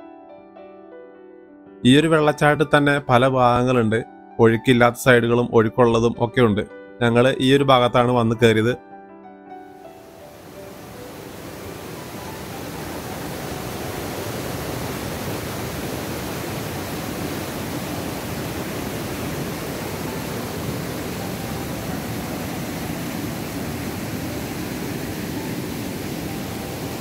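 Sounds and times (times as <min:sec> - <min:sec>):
waterfall rushing over boulders: 0:10.0 - 0:27.0.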